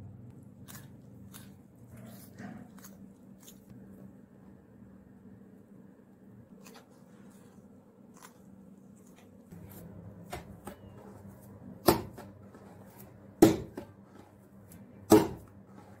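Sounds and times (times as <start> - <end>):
dough kneaded by hand: 0.0 - 16.0
dough slapping on wooden board: 11.8 - 16.0.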